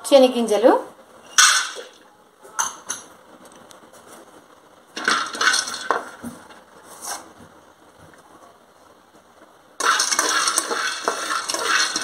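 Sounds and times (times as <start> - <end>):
spatula scraping peanuts in metal pan: 9.8 - 12.0.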